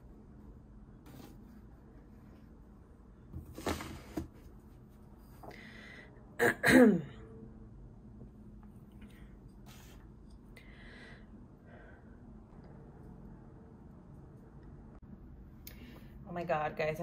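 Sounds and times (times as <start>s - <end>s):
person clearing throat: 6.4s - 7.2s.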